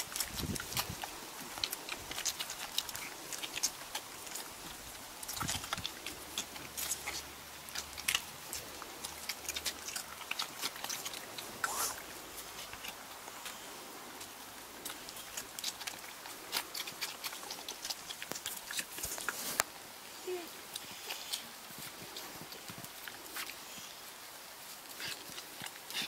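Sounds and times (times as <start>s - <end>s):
puppies suckling: 0.0s - 26.0s.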